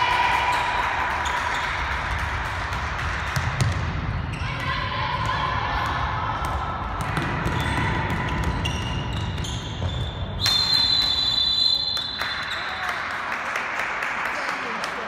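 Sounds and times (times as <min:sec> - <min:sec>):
handball bouncing: 0:01.2 - 0:10.6
shoes squeaking on floor: 0:08.5 - 0:10.5
referee's whistle blast: 0:10.4 - 0:12.7.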